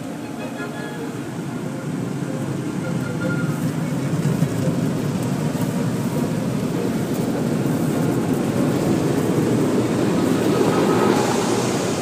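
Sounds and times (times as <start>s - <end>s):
car-wash dryer blowers rushing: 3.5s - 12.0s.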